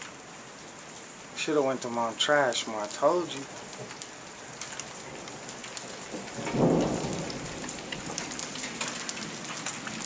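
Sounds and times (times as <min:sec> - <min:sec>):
rain falling steadily: 0:00.0 - 0:10.0
low rumble of thunder: 0:05.2 - 0:10.0.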